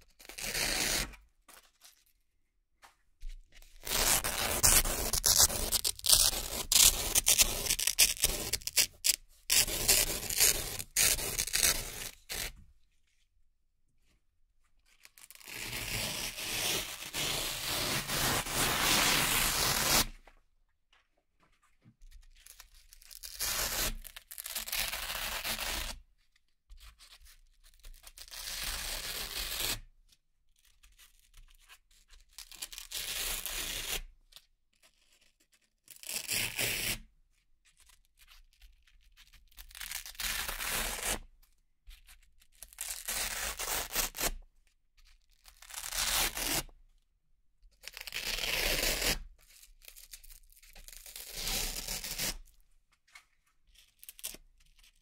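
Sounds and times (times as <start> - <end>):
velcro ripping: 3.8 - 12.5, 15.2 - 20.2, 42.7 - 44.4, 45.5 - 46.7, 47.9 - 49.2, 50.8 - 52.5.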